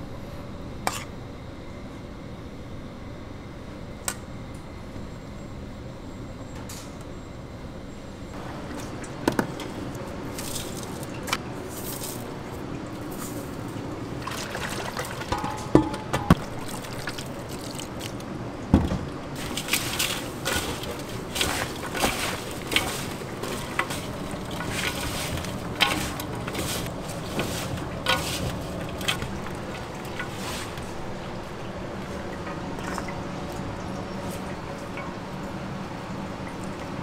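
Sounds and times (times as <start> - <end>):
low steady hum: 0.0 - 37.0
wet rustling and squishing: 16.4 - 18.3, 19.0 - 33.1.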